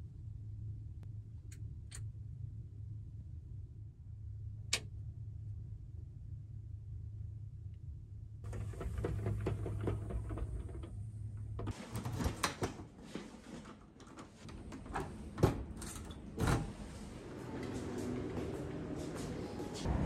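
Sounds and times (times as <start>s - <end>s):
low hum: 0.0s - 11.7s
blind rattling as it slides: 8.5s - 11.0s.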